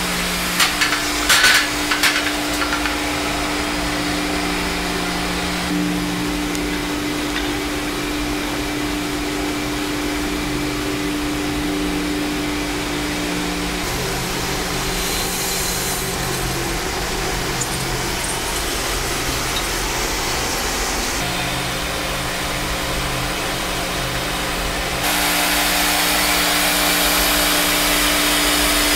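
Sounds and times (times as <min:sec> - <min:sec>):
machinery whirring: 0:00.0 - 0:23.5
valve hissing: 0:13.9 - 0:21.2.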